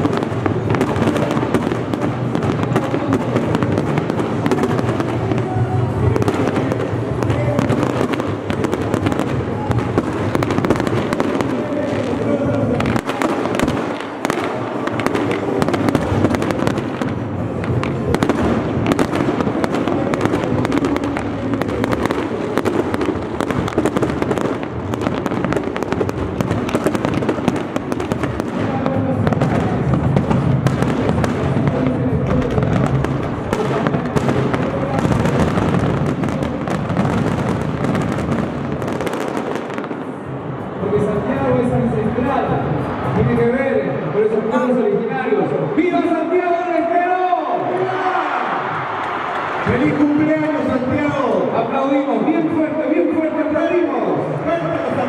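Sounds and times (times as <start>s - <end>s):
fireworks bursting and crackling: 0.0s - 43.2s.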